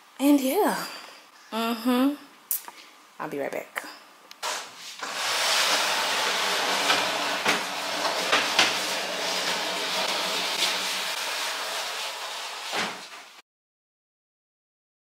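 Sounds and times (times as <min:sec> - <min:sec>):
furniture dragged across floor: 0:04.4 - 0:13.4.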